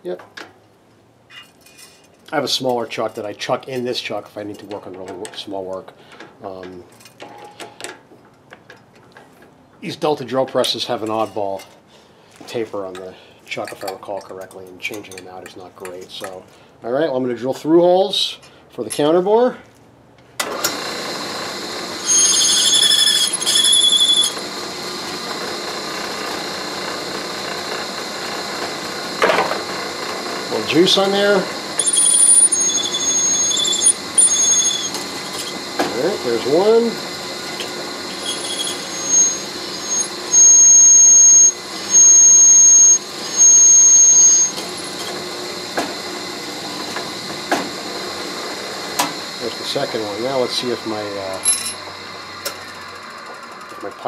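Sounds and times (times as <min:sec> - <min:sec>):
drill press running: 0:20.4 - 0:54.0
high warbling squeal: 0:22.0 - 0:24.4, 0:31.8 - 0:35.0, 0:38.2 - 0:44.6.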